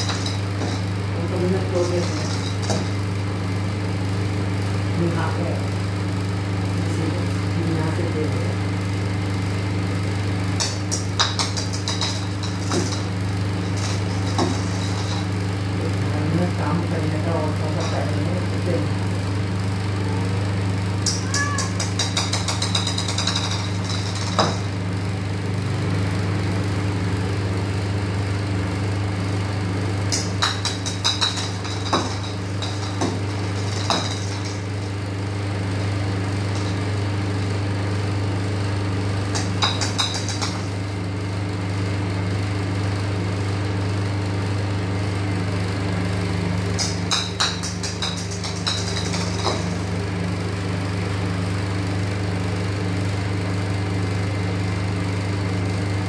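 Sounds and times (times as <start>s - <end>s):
electric motor hum: 0.0s - 56.0s
rapid high clicking: 10.6s - 15.5s, 21.0s - 24.8s, 30.1s - 35.0s, 39.3s - 40.8s, 46.8s - 50.0s.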